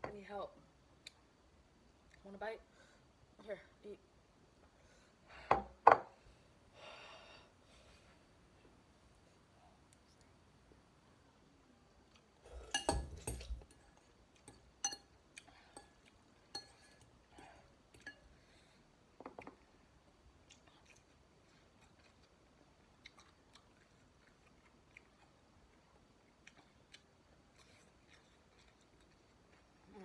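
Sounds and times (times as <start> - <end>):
wet chewing with mouth clicks: 20.4 - 30.0.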